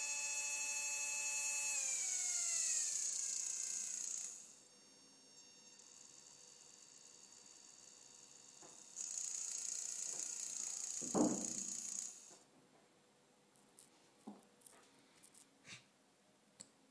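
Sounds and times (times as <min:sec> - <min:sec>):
electric motor buzz: 0:00.0 - 0:12.4
high-pitched electronic whine: 0:00.0 - 0:12.4.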